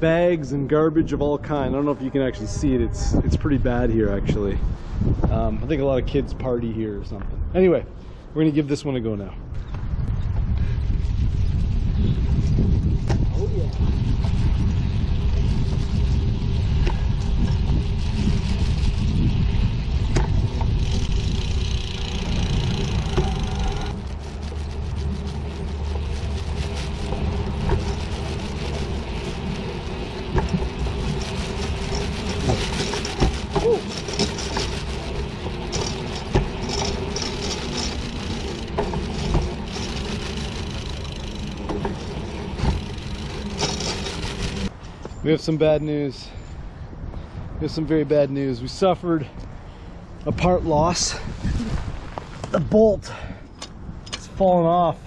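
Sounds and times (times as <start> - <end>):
wheels rumbling on steel rails: 10.8 - 45.2.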